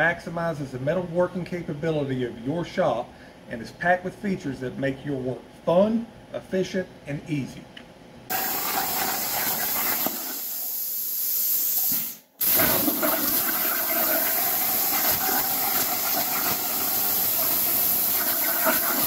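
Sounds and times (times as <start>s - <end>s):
plasma torch hissing: 8.3s - 19.0s.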